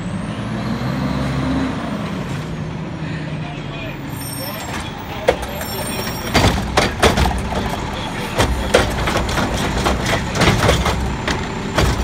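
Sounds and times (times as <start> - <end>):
diesel engine running: 2.6 - 12.0
trash cart knocks and clanks: 4.7 - 12.0.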